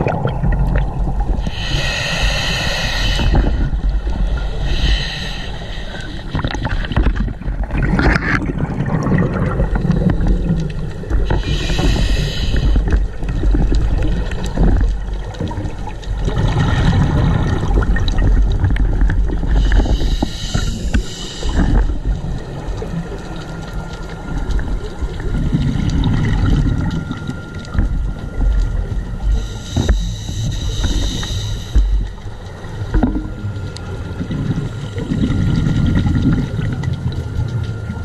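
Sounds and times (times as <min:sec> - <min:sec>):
low rumbling bubbling: 0:00.0 - 0:05.4, 0:06.0 - 0:38.0
scuba regulator inhale hiss: 0:01.4 - 0:06.4, 0:11.3 - 0:12.9, 0:19.6 - 0:22.0, 0:29.4 - 0:32.0.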